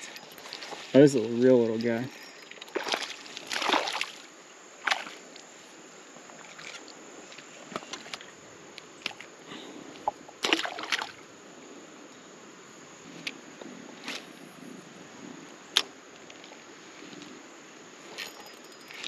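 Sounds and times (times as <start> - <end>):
creek water splashing: 0.0 - 9.4, 10.0 - 11.4.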